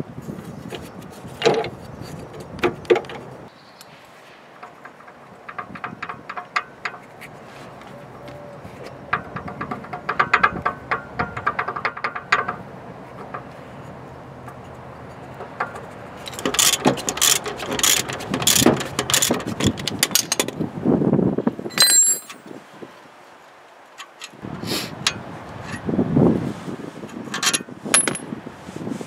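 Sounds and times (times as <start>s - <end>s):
metal tools knocking: 4.6s - 7.0s, 21.7s - 22.4s, 27.3s - 28.2s
short metallic clink: 21.7s - 22.5s.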